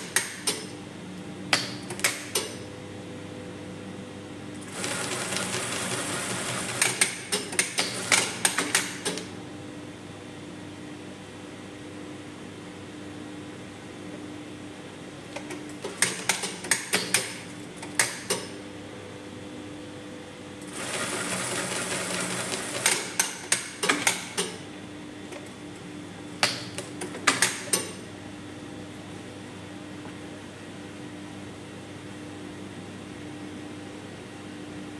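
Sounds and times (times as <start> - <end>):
sewing machine clicking and stitching: 20.7 - 24.5.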